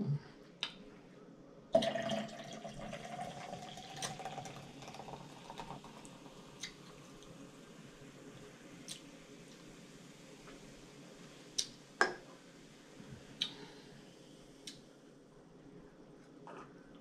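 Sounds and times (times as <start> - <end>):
soda pouring into glass: 1.8 - 7.2.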